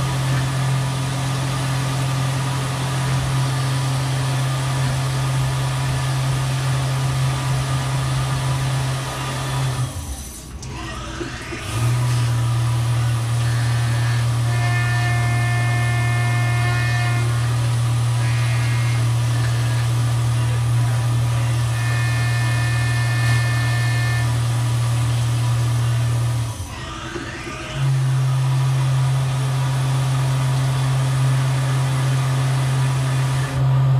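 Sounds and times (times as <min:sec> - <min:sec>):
cnc mill spindle hum: 0:00.0 - 0:33.9
spindle spinning up whine: 0:00.0 - 0:33.9
high cutting tones: 0:09.1 - 0:29.0.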